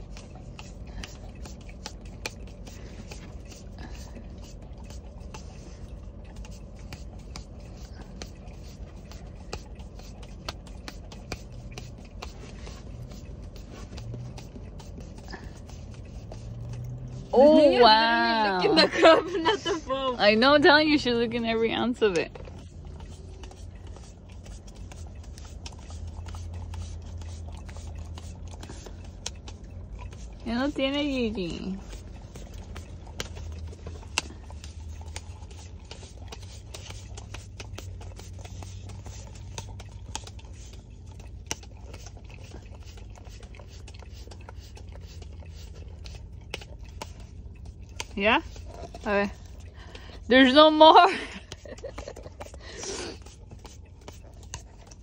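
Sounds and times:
dog licking a paper cup: 0.0s - 55.0s
steady low hum: 0.0s - 55.0s.

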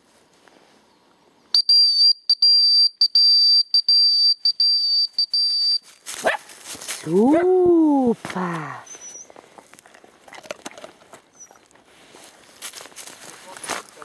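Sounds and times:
dog whistle blasts: 1.6s - 5.8s.

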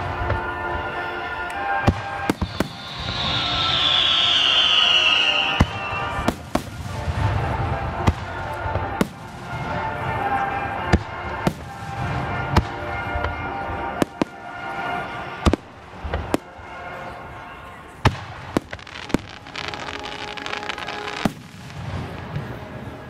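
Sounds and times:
firework bangs and crackles: 0.0s - 1.0s, 1.6s - 17.4s, 18.0s - 23.0s
falling firework whistle: 1.8s - 9.1s.

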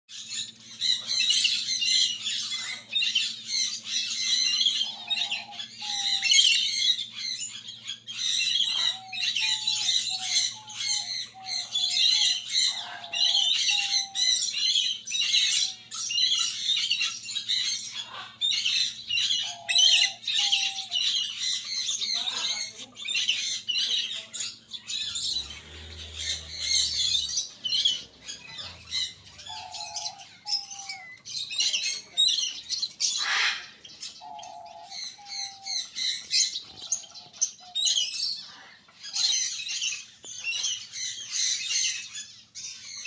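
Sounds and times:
finches chattering: 0.1s - 43.0s
nasal beeping bird calls: 0.9s - 38.5s.

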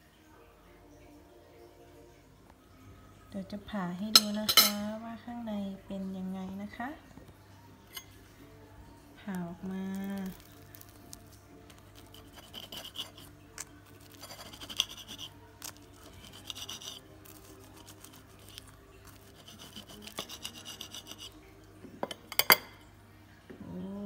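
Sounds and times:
knife sawing crisp pastry: 11.7s - 21.4s.

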